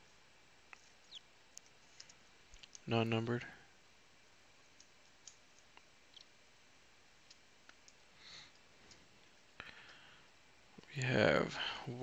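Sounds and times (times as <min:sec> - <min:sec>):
soft rustle of cards: 0:00.0 - 0:03.6, 0:07.1 - 0:10.0
faint clicks of trading cards: 0:00.7 - 0:03.0.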